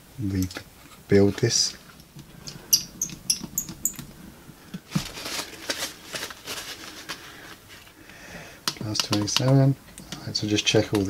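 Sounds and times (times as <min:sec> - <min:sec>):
paper towel rustling: 0:04.1 - 0:08.0
sharp plastic clicks: 0:08.6 - 0:11.0.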